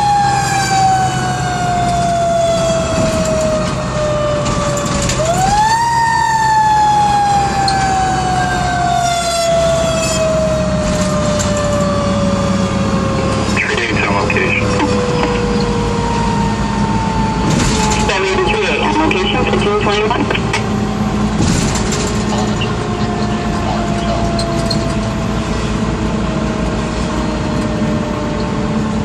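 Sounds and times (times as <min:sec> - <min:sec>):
fire engine siren: 0:00.0 - 0:29.0
truck engine running: 0:09.6 - 0:29.0.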